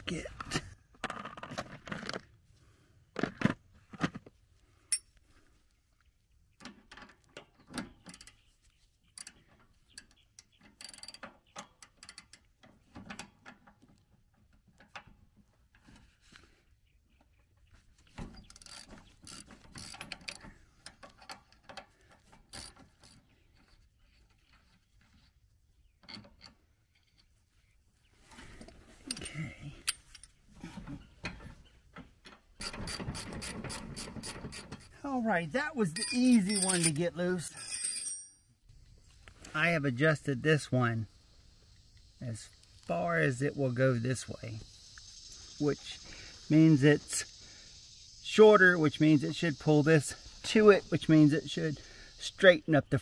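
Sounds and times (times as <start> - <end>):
metal clinks and knocks: 1.0 - 2.4, 35.9 - 38.5.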